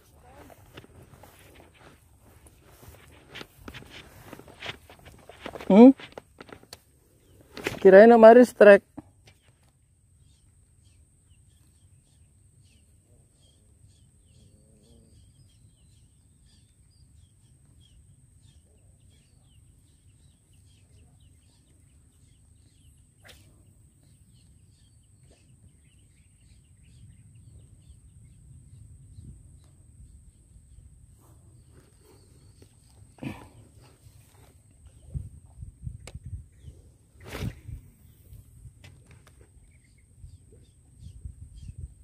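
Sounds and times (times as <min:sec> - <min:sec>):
faint bird chirps: 0:10.2 - 0:38.4.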